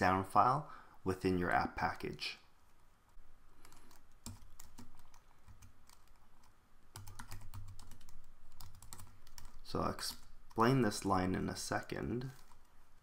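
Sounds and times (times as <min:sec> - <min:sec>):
typing on computer keyboard: 0:03.6 - 0:10.6, 0:12.2 - 0:12.7.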